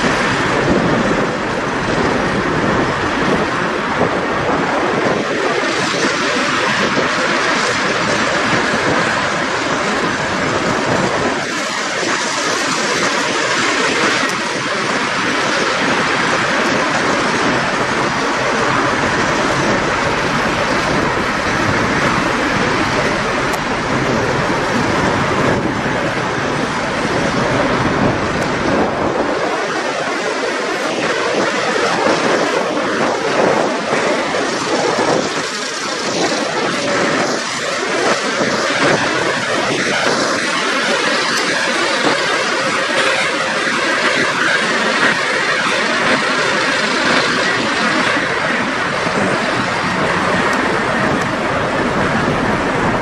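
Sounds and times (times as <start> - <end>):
low rumble: 0.0 - 6.0, 13.4 - 29.8, 48.7 - 53.0.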